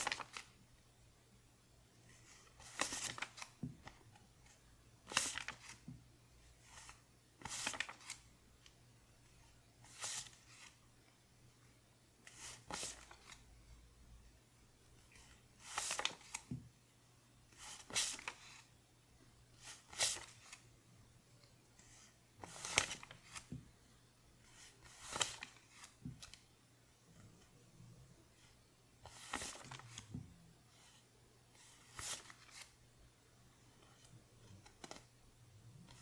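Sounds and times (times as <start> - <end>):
paper bills rustling: 0.0 - 0.5, 2.4 - 3.6, 5.0 - 5.8, 6.7 - 8.3, 15.2 - 16.5, 22.4 - 23.6, 24.6 - 26.4, 29.1 - 30.1, 31.7 - 32.8.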